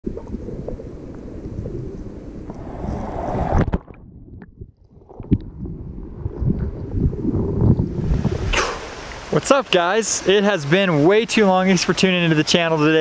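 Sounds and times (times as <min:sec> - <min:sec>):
creek water splashing and flowing: 0:06.8 - 0:13.0.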